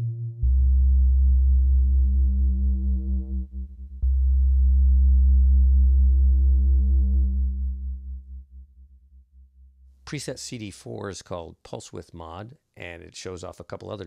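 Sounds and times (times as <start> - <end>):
low synthesizer chord: 0.0 - 9.9.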